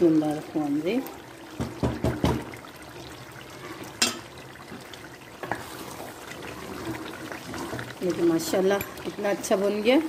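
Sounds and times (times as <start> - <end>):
curry sizzling: 0.0 - 10.0
spoon stirring curry in pot: 3.1 - 9.2.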